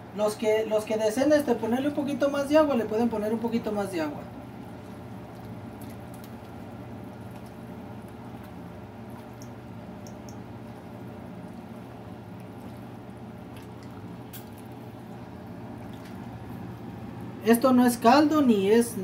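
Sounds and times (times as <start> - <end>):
steady low hum: 0.0 - 19.0
ladle stirring thick soup: 4.4 - 16.8.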